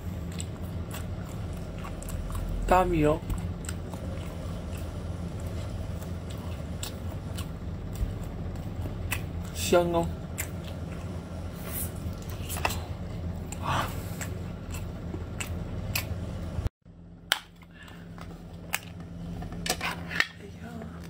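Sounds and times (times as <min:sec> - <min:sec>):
wet chewing and sucking: 0:00.0 - 0:09.6, 0:10.2 - 0:16.5.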